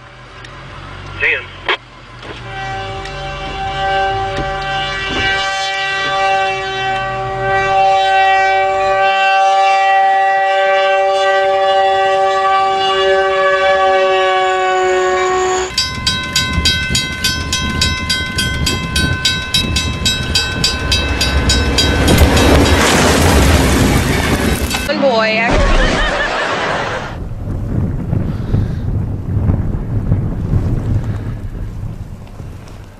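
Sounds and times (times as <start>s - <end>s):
approaching train rushing: 0.0s - 32.6s
train horn: 2.2s - 24.9s
level crossing warning bell: 15.3s - 23.8s.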